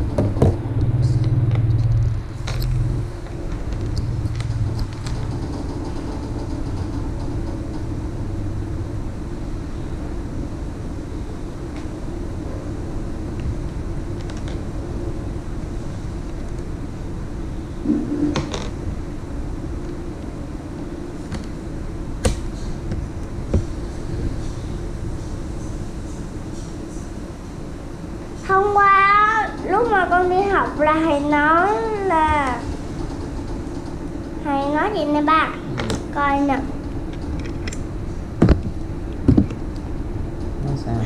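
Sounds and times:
low mechanical hum: 0:00.0 - 0:41.0.

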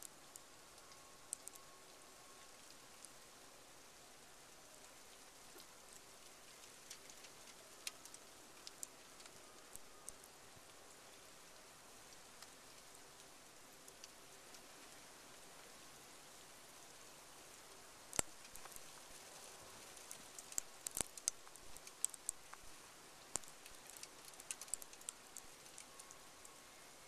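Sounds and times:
faint steady hiss: 0:00.0 - 0:27.0
snow ticking against surfaces: 0:18.1 - 0:27.0.

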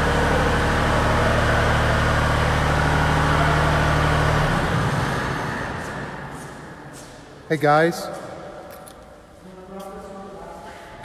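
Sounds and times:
lift engine running: 0:00.0 - 0:07.0.

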